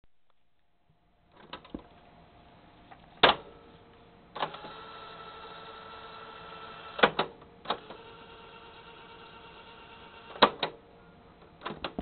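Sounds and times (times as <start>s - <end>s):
tape transport humming: 1.3s - 12.0s.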